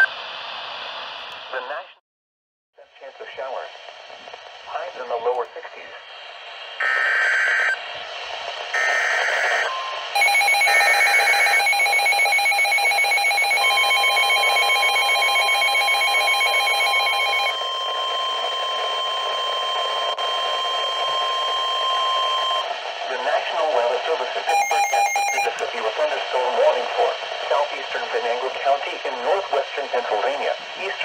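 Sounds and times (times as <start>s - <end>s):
steady warning tone: 8.7s - 29.8s
rapid pulsing alarm beeps: 8.8s - 22.7s, 24.4s - 25.5s.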